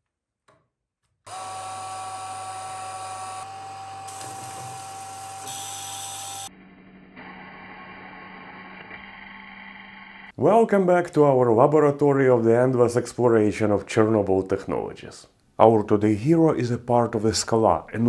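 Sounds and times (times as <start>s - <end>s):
tape reader motor whine: 1.3s - 6.5s.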